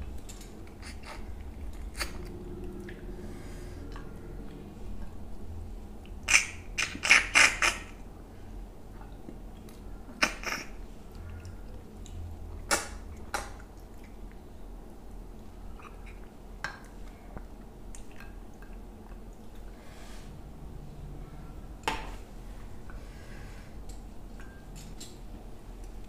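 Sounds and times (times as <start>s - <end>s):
mouth chewing smacks: 9.0s - 14.4s, 15.7s - 19.7s.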